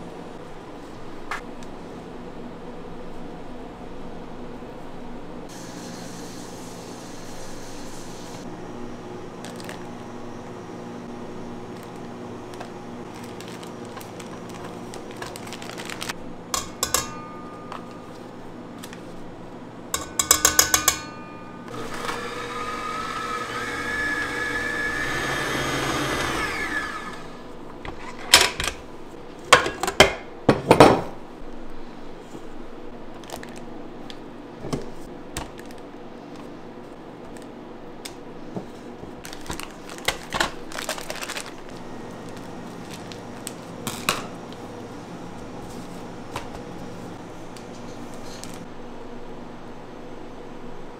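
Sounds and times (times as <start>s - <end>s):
utensils and bowls knocking: 16.6s - 18.1s, 20.0s - 21.7s
electric mixer running: 21.7s - 27.5s.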